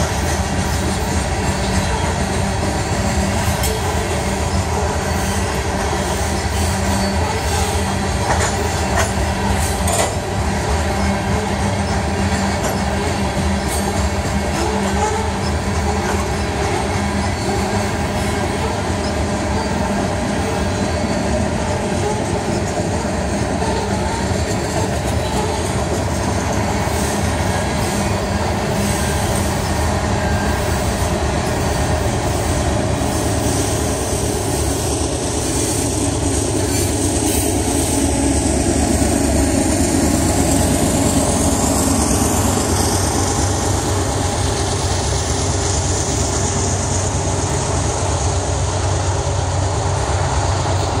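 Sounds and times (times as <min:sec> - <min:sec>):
train wheels rumbling on rails: 0:00.0 - 0:51.0
faint high wheel squeal: 0:00.4 - 0:36.0.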